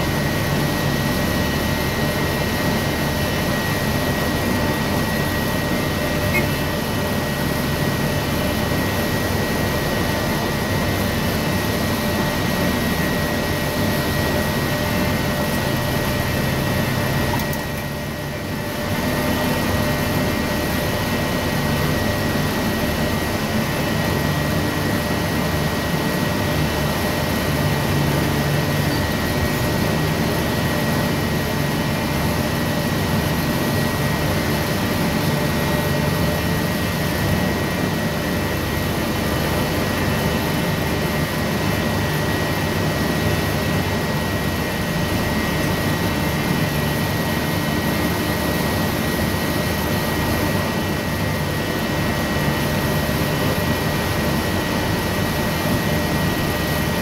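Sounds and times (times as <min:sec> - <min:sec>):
high whine: 0:00.0 - 0:23.4.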